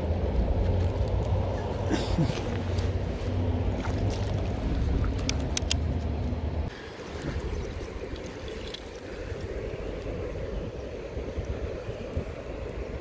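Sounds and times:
river water running: 1.1 - 13.0
sharp clicks: 5.2 - 6.1.

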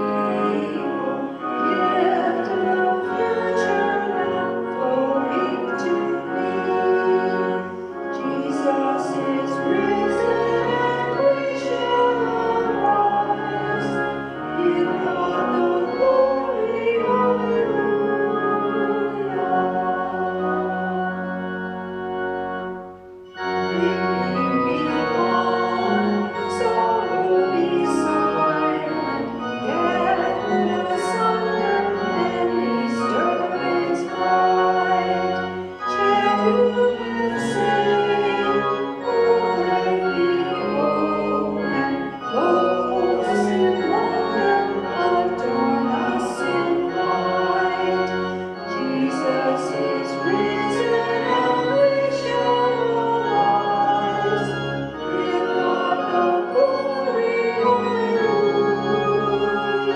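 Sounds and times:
voices singing: 0.0 - 21.6, 23.4 - 59.9
organ playing hymn: 0.0 - 59.9.

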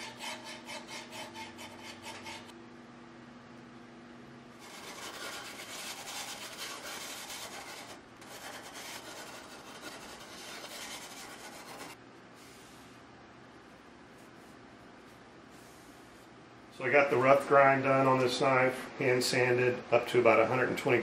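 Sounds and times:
sandpaper rasping on knife blade: 0.0 - 2.5, 4.6 - 12.0.

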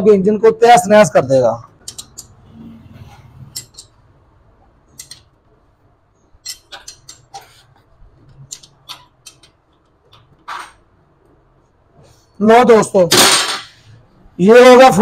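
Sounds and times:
spanner clicking on metal bolt: 1.8 - 2.4, 3.5 - 4.0, 4.9 - 5.3, 6.4 - 7.4, 8.5 - 10.6.

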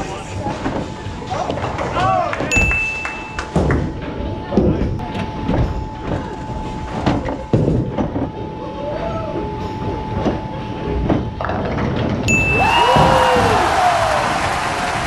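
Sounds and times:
balls and pins clattering: 0.5 - 8.5.

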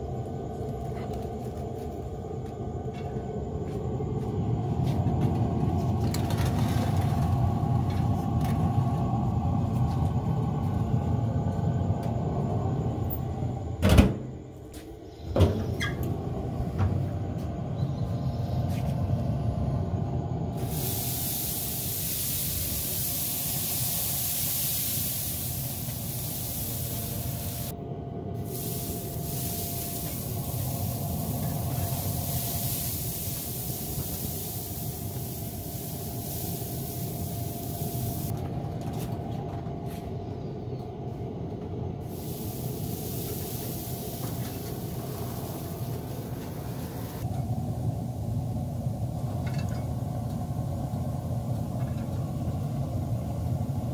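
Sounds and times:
low steady rumble: 14.4 - 53.9
pressure sprayer hissing: 20.6 - 27.7, 28.4 - 38.3, 42.1 - 47.3.

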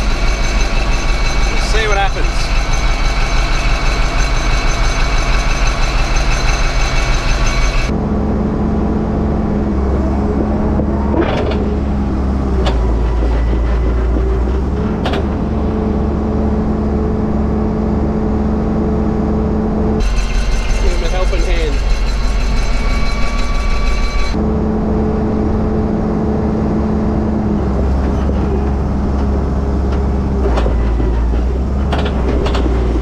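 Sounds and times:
sharp metallic knocks: 0.0 - 7.9, 20.0 - 24.4
bulldozer diesel engine under load: 0.0 - 33.0.

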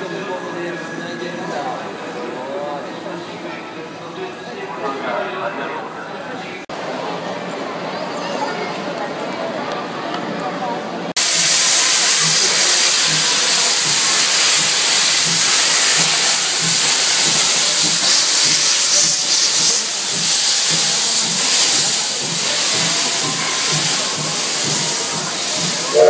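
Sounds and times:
steam hissing from locomotive: 11.2 - 26.0.

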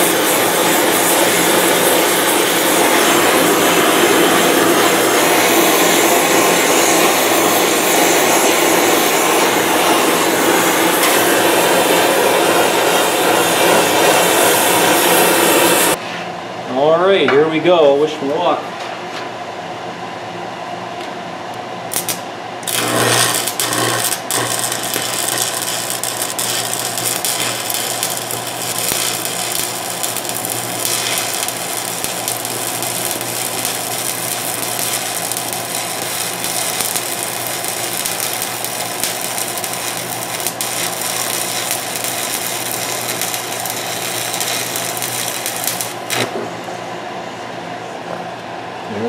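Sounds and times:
welding arc crackling and hissing: 0.0 - 16.0, 21.9 - 46.4
welding rod scratches: 21.9 - 46.3.

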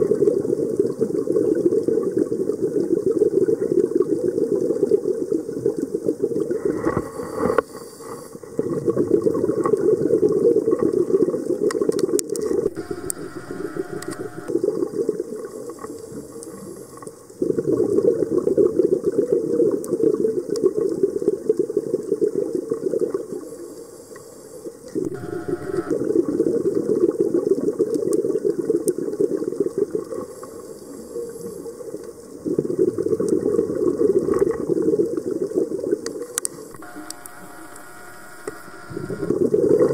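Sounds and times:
exhaled bubbles underwater: 8.4 - 12.7, 14.5 - 23.5, 31.8 - 36.0
hissing regulator inhalation: 36.7 - 39.3.

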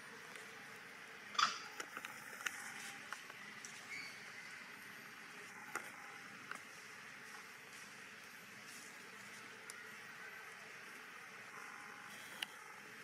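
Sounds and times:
faint high bird chirp: 3.4 - 4.7.

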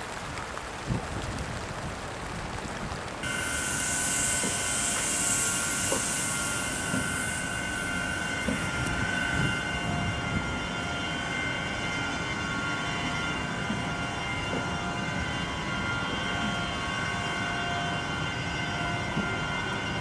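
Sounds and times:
electric locomotive whine: 0.0 - 20.0
high hiss: 3.2 - 10.0.

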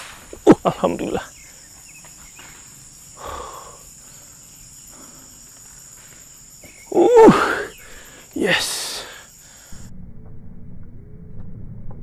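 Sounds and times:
insect chorus drone: 0.0 - 11.7
loud short cry: 6.9 - 7.7.

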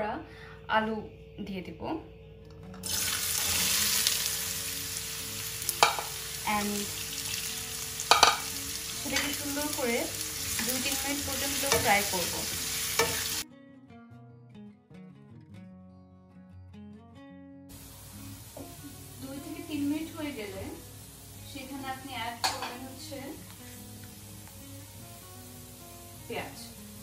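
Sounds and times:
faint background music: 0.0 - 27.0
potatoes sizzling in oil: 2.8 - 13.4, 17.7 - 27.0.

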